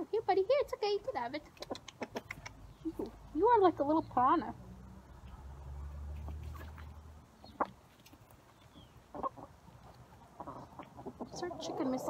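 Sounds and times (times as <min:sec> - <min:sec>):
hens and rooster clucking: 0:01.4 - 0:03.5, 0:06.1 - 0:12.0.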